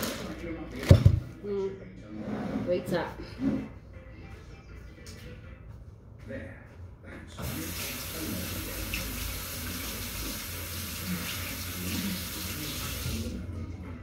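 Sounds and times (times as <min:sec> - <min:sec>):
water running from a tap: 0:07.4 - 0:13.4.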